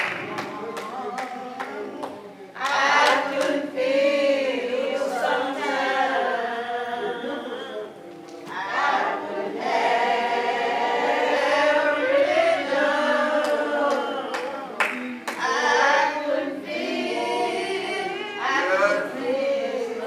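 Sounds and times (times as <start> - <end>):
congregation singing a hymn: 0.0 - 20.0.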